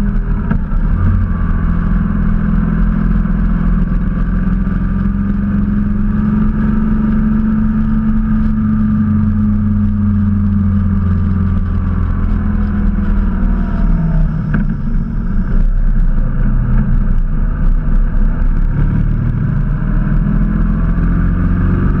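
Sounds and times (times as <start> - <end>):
motorcycle engine running: 0.0 - 22.0
wind noise on microphone: 0.0 - 22.0.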